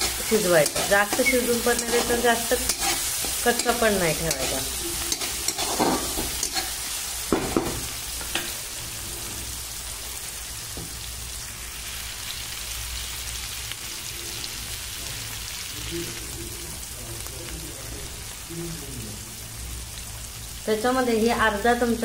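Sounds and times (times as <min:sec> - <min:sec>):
steel spatula scraping pan: 0:00.0 - 0:07.0
vegetables sizzling in oil: 0:00.0 - 0:22.0.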